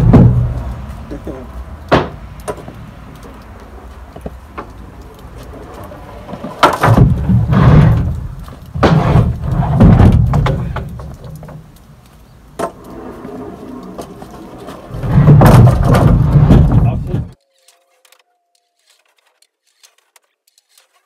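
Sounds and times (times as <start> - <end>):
wooden boards knocking and scraping: 0.0 - 0.7, 1.9 - 2.8, 5.4 - 11.7, 12.6 - 17.4
sharp knock of wood: 1.9 - 2.6.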